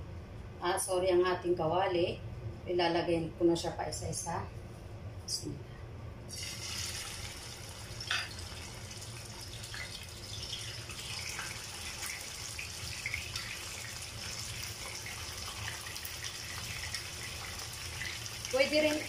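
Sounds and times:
fish frying in hot oil: 0:06.3 - 0:19.0.

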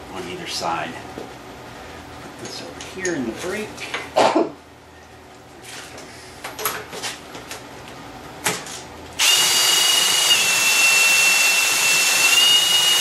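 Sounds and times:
cordless drill whining: 0:09.2 - 0:13.0.

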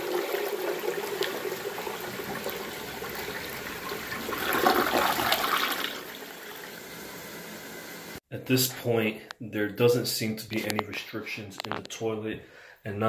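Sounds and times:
toilet flushing: 0:00.0 - 0:08.2.

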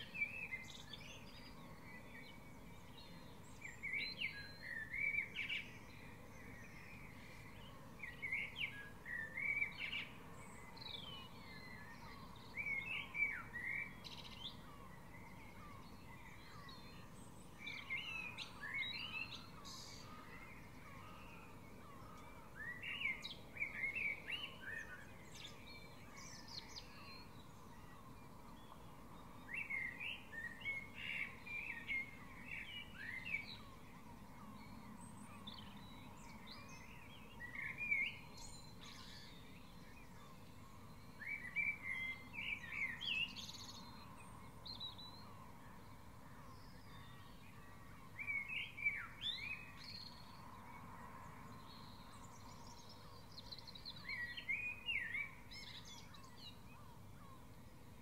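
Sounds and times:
quiet bird chirps: 0:00.0 - 0:58.0
songbird singing whistled phrases: 0:06.7 - 0:28.0, 0:40.2 - 0:45.3, 0:51.8 - 0:56.6.

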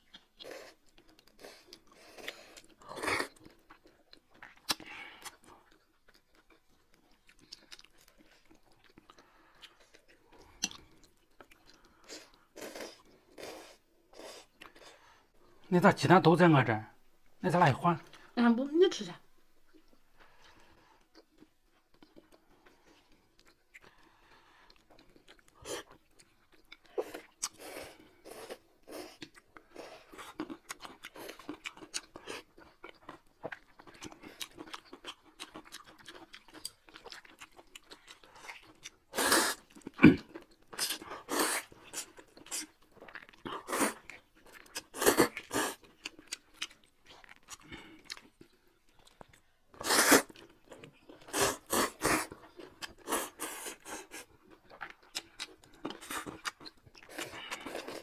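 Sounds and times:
wet chewing and crunching: 0:00.0 - 0:15.1, 0:19.6 - 0:58.0
loud slurping of noodles: 0:39.1 - 0:39.6, 0:49.8 - 0:50.4.

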